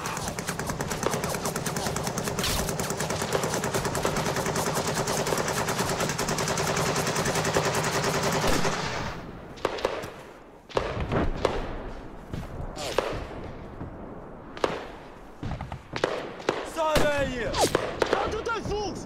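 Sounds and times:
machine-gun fire: 0:00.0 - 0:10.0.

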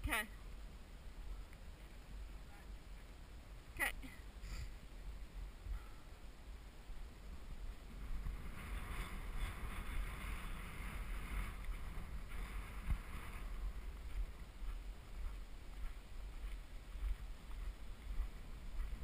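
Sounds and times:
wind buffeting microphone: 0:04.7 - 0:19.0.

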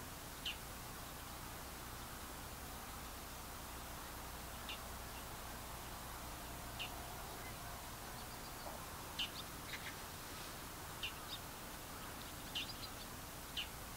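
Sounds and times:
faint outdoor hiss: 0:00.0 - 0:13.9
small birds chirping: 0:00.4 - 0:01.4, 0:04.1 - 0:13.9.

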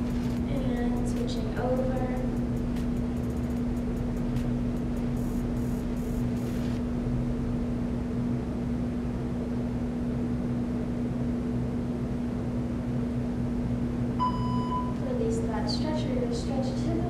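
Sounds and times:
low electrical hum: 0:00.0 - 0:17.0
long electronic timer beep: 0:14.2 - 0:15.0.

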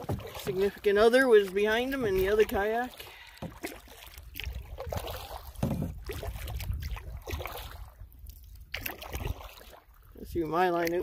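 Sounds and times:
water splashing against canoe hull: 0:00.0 - 0:11.0
wind rumble on microphone: 0:04.3 - 0:10.8.

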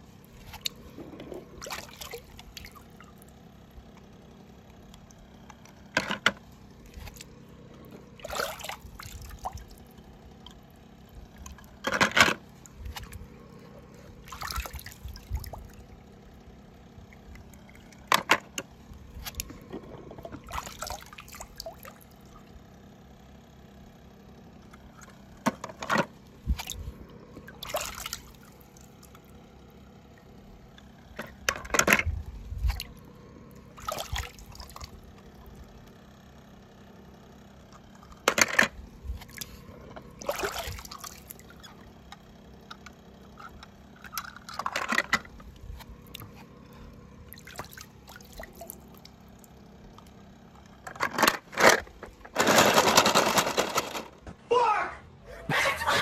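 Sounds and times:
water splashing and trickling: 0:00.2 - 0:03.8, 0:06.5 - 0:18.1, 0:20.2 - 0:22.5, 0:26.3 - 0:30.7, 0:32.4 - 0:35.7, 0:39.2 - 0:42.1, 0:47.2 - 0:49.6.

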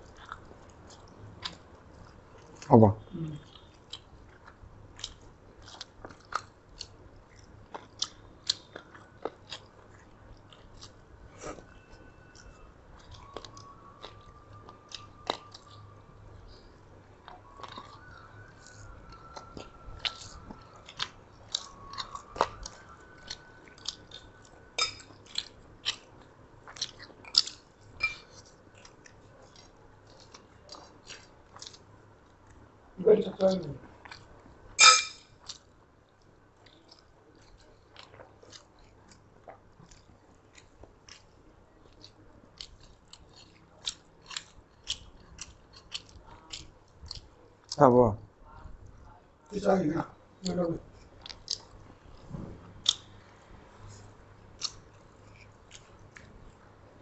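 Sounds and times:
people chewing: 0:00.0 - 0:57.0
mouth clicks and smacks: 0:50.4 - 0:53.4, 0:54.0 - 0:56.6.

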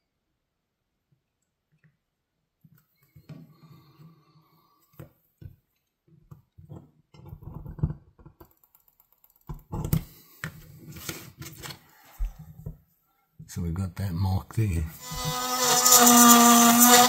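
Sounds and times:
metal tool scraping plastic: 0:15.0 - 0:17.0.

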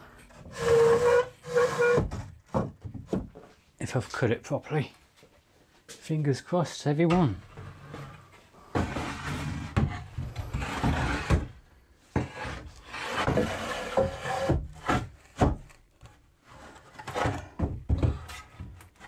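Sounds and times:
wooden board scraping on wood: 0:00.4 - 0:03.2, 0:07.5 - 0:11.6, 0:12.2 - 0:15.8.

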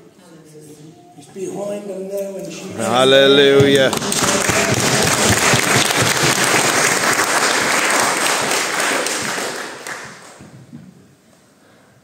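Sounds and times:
congregation applauding: 0:02.9 - 0:10.7.

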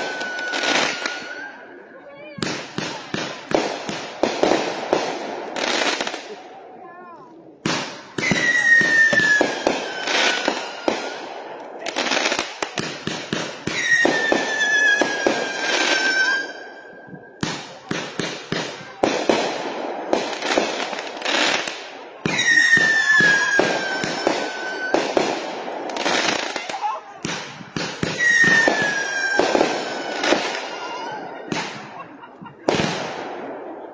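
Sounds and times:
falling firework whistles: 0:00.0 - 0:01.6, 0:07.8 - 0:11.3, 0:13.4 - 0:17.6, 0:21.4 - 0:26.6, 0:27.3 - 0:33.3
fireworks shots and pops: 0:00.0 - 0:06.6, 0:07.6 - 0:33.9.

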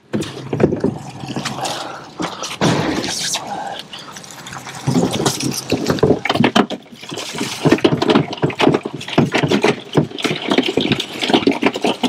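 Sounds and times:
water dripping and splashing: 0:00.0 - 0:12.0
crab trap clattering: 0:04.7 - 0:12.0.

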